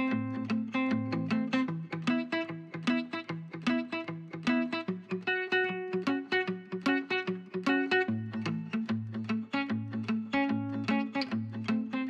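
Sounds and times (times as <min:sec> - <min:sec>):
guitar picking a melody: 0:00.0 - 0:12.0.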